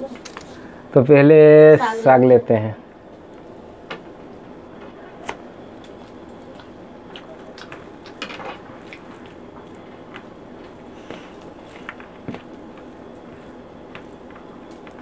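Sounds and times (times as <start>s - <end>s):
chewing: 5.9s - 8.2s.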